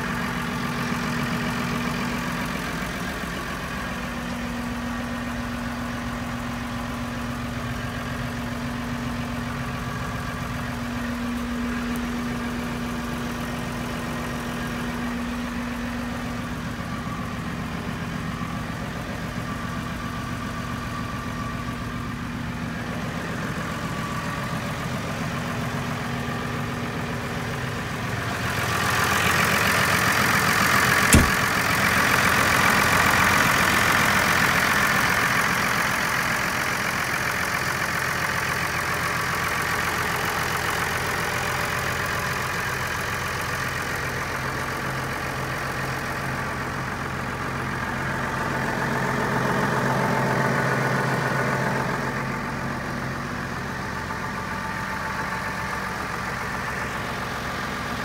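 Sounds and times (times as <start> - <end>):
tractor diesel engine idling: 0.0 - 58.0
sharp knock: 31.1 - 31.5.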